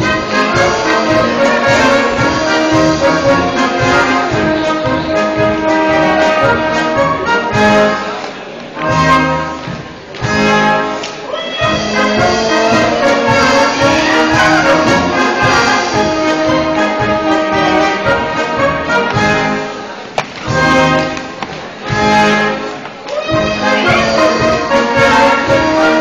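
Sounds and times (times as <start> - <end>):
brass band playing dance tune: 0.0 - 26.0.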